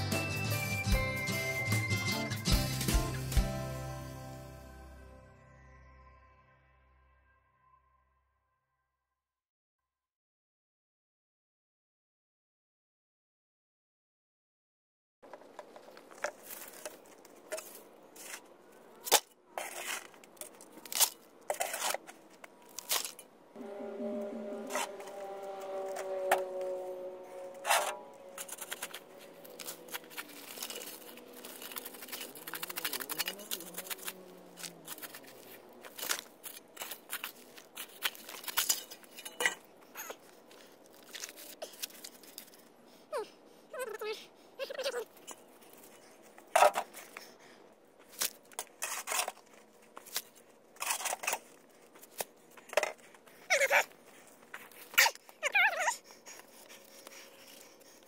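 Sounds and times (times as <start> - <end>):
hands scraping dirt and rocks: 15.3 - 23.2, 27.5 - 42.6
steady pitched drone: 23.5 - 32.5.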